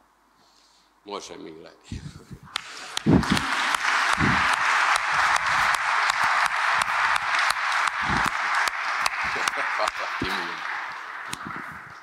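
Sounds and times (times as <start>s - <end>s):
congregation applauding: 2.5s - 12.0s.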